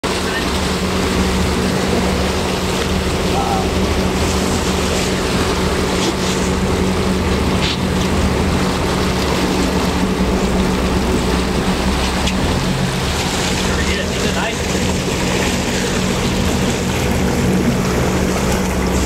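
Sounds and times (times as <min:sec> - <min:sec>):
boat engine droning: 0:00.0 - 0:19.0
water rushing at stern: 0:00.0 - 0:19.0.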